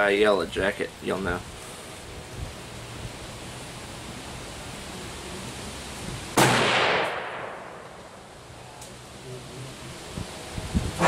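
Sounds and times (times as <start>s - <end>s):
rifle shot: 6.4s - 8.0s.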